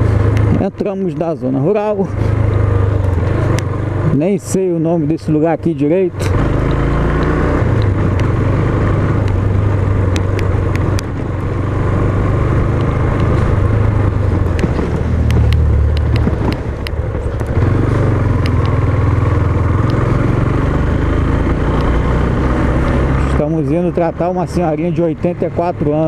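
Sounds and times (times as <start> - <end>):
motorcycle engine running: 0.0 - 26.0
sharp ticks: 6.2 - 8.5, 9.2 - 11.5, 12.6 - 13.7, 14.4 - 17.6, 18.3 - 20.0.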